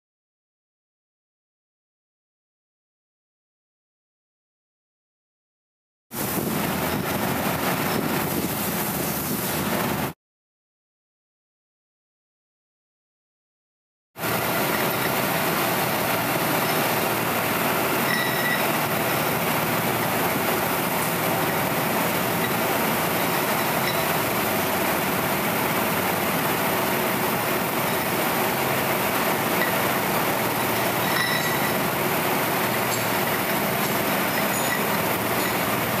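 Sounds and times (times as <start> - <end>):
faint metallic rings: 30.6 - 31.8.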